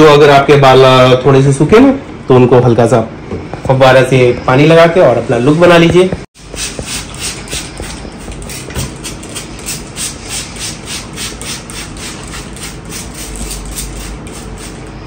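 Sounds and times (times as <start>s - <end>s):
spray bottle hissing squirts: 6.4s - 14.9s.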